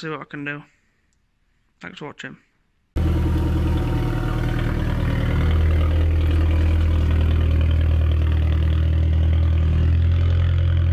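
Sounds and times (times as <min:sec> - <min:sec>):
car engine idling: 0:03.0 - 0:10.9.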